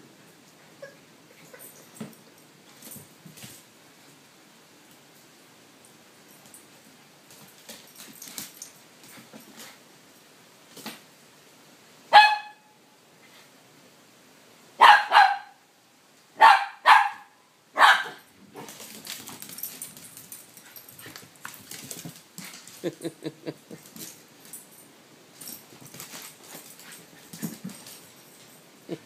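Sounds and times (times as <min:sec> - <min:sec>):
puppy barking: 0:12.1 - 0:12.7, 0:14.8 - 0:15.6, 0:16.4 - 0:18.2.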